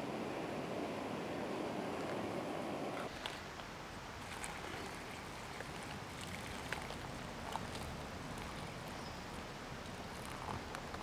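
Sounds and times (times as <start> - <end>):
water trickling into a pouch: 4.2 - 11.0.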